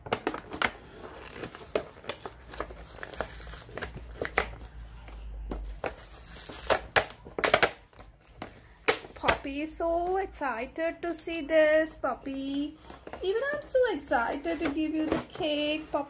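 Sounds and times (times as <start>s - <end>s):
packaging crinkling: 0.0s - 4.8s.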